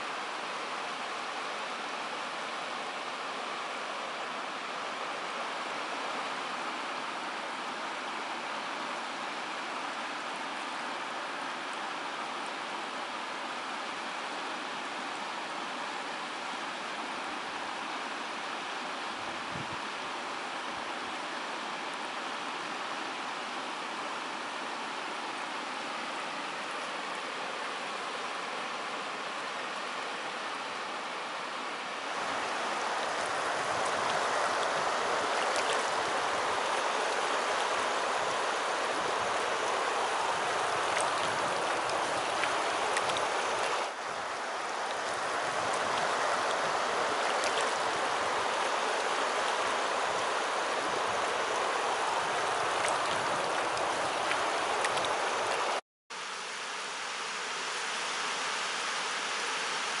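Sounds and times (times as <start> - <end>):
river rushing over rocks: 32.0 - 55.8.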